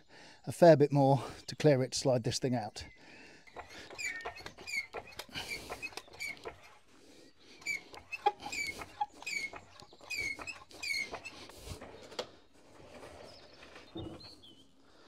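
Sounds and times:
trolley jack handle squeaking: 3.5s - 6.9s, 7.6s - 14.7s.

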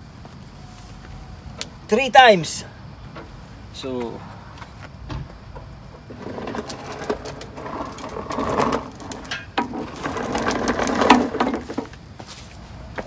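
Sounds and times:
mower wheels rattling on concrete: 5.5s - 12.0s.

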